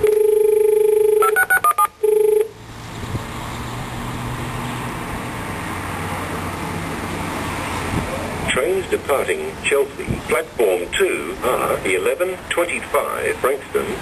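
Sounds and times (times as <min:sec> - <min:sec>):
touch-tone dialing beeps: 0:00.0 - 0:02.5
buzzy dial tone: 0:00.0 - 0:02.6.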